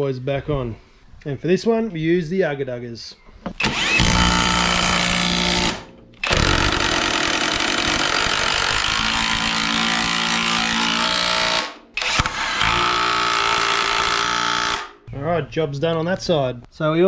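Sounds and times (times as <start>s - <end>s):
impact wrench hammering bolts: 3.5s - 14.9s.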